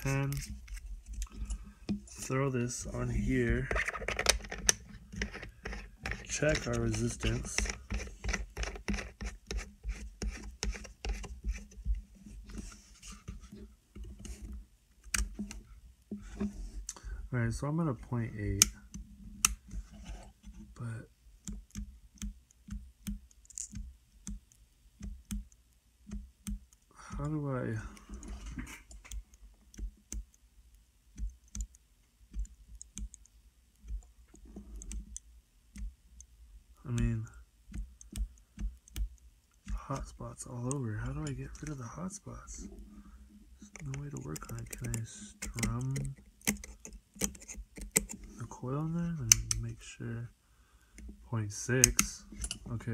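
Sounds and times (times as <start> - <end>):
small clicks and taps: 3.6 - 12.6, 13.3 - 17.0, 21.4 - 30.4, 31.1 - 36.3, 36.9 - 41.8, 43.6 - 48.3, 49.2 - 49.7, 51.8 - 52.8
small metal parts clicking and scraping: 23.4 - 23.8.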